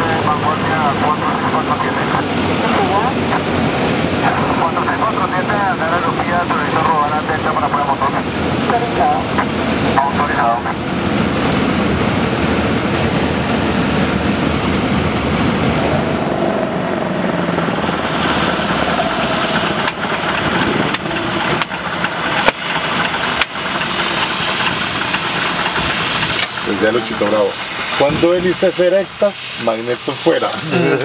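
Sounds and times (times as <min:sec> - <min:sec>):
radial piston engine running: 0:04.2 - 0:31.0
engine pops: 0:14.5 - 0:27.3.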